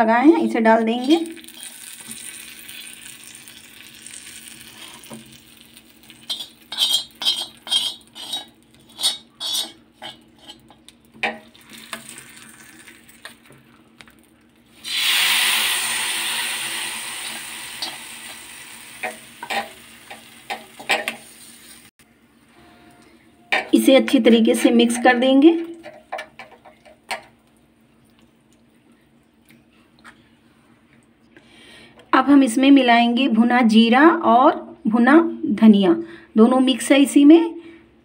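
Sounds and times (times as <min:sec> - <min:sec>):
hot oil sizzling: 0:01.0 - 0:13.5, 0:14.6 - 0:21.9
metal spoon scraping and tapping: 0:06.2 - 0:11.5, 0:19.0 - 0:21.2.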